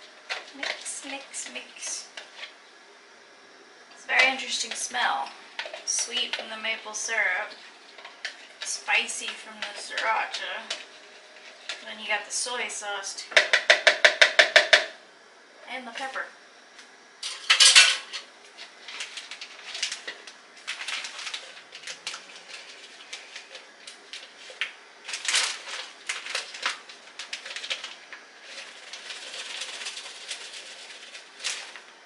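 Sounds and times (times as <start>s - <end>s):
plastic bag crinkling: 18.5s - 32.0s.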